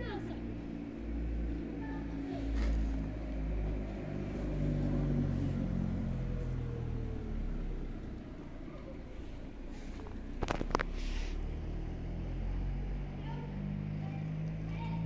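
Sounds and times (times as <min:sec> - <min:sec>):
vehicle engine humming: 0:00.0 - 0:15.0.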